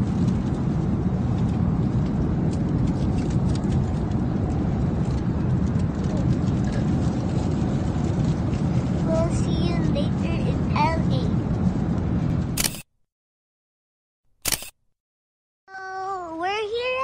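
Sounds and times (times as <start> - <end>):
airliner cabin rumble: 0.0 - 12.8.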